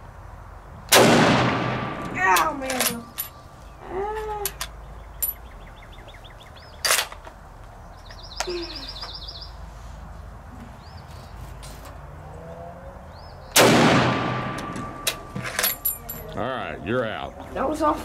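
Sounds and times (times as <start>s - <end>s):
small birds chirping: 2.2s - 11.8s, 12.9s - 13.6s.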